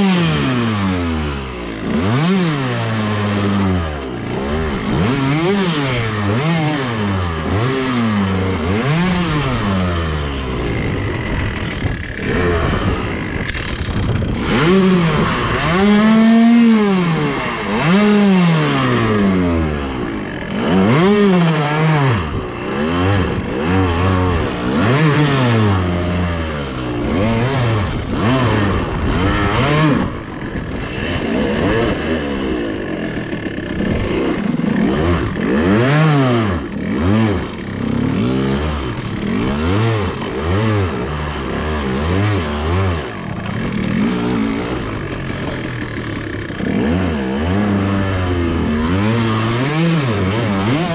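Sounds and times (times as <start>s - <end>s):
dirt bike engine revving: 0.0s - 50.9s
branches scraping against bike: 3.3s - 18.0s.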